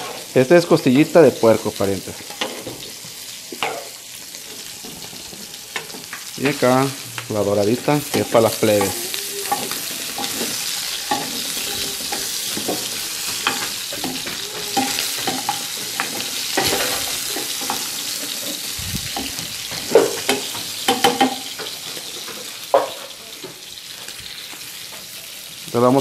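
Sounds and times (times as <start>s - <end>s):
meat sizzling in a skillet: 0.0s - 26.0s
metal spoon scraping a pan: 2.2s - 3.0s, 3.6s - 6.7s, 7.8s - 22.2s.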